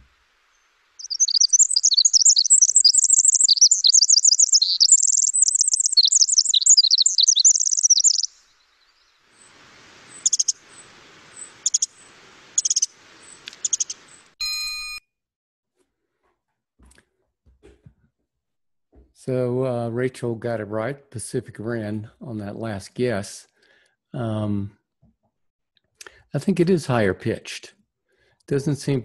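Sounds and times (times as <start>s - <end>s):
faint background hiss: 0.0s - 1.1s, 8.2s - 14.4s
wren song: 0.0s - 14.4s
bird call notes: 1.0s - 8.6s, 10.1s - 15.0s.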